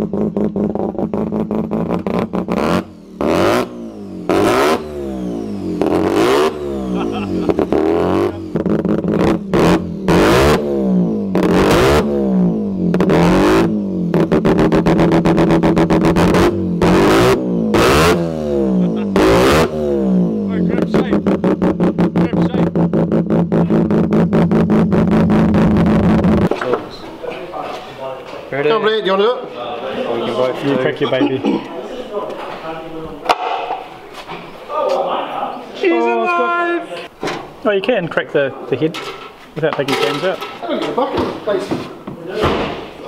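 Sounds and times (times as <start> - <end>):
rotary engine revving: 0.0 - 26.5.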